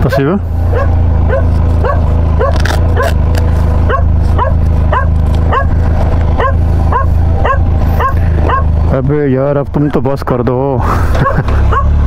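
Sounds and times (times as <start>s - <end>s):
dog barking: 0.0s - 3.2s, 3.9s - 5.8s, 6.4s - 8.8s, 11.2s - 12.0s
low engine hum: 0.0s - 12.0s.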